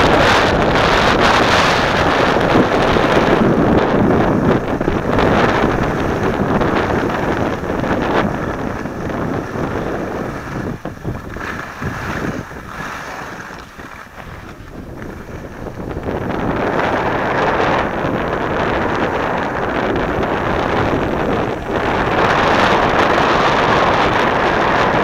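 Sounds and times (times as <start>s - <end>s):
wind rushing over microphone: 0.0s - 25.0s
skis sliding over snow: 0.1s - 17.9s.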